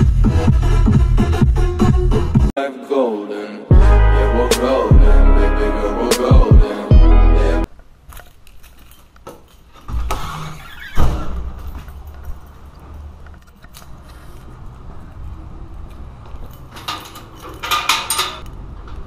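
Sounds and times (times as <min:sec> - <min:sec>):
keys jangling: 0:08.1 - 0:09.9, 0:11.4 - 0:13.9, 0:16.2 - 0:18.6
keys rattling in metal gate lock: 0:08.1 - 0:09.9, 0:11.4 - 0:13.9, 0:16.3 - 0:18.7.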